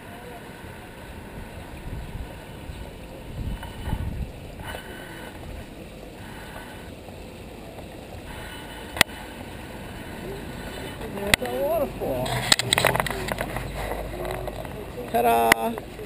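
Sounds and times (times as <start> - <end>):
waterfall splashing over rocks: 0.0 - 16.0
microphone rumbles: 1.4 - 4.8.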